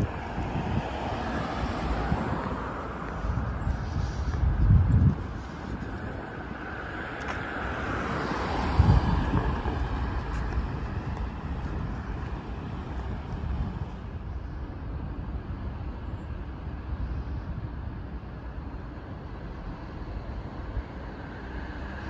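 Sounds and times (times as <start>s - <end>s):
vehicle passing by: 0.0s - 13.9s
low traffic rumble: 0.0s - 22.0s.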